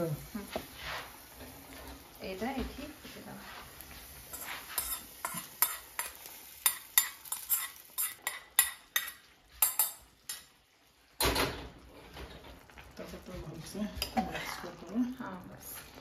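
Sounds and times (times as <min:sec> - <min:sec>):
spoon clinking against metal pan: 0:04.8 - 0:10.5.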